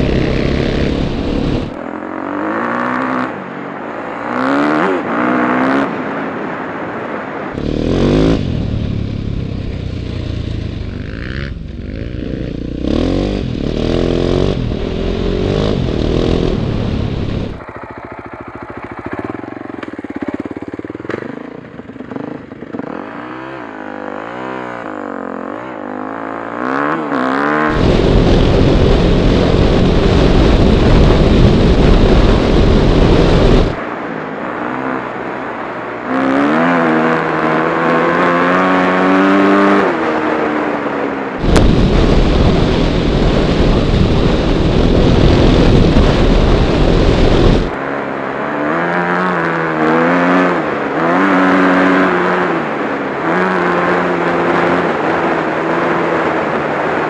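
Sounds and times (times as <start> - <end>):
dirt bike engine revving: 0.0 - 6.1, 7.6 - 33.9, 36.0 - 57.0
wind buffeting on microphone: 27.7 - 33.8, 41.4 - 47.8.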